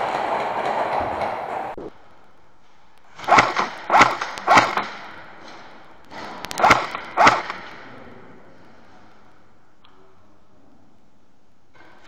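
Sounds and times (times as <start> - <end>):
airsoft rifle shots: 3.2 - 7.9.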